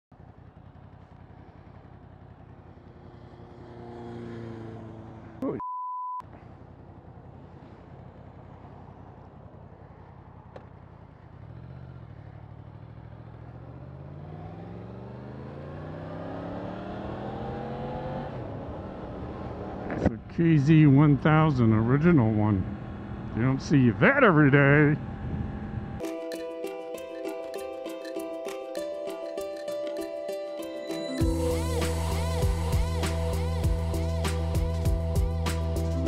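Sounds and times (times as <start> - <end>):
motorcycle engine accelerating: 0.1 - 5.4, 6.2 - 26.0
steady beep: 5.5 - 6.2.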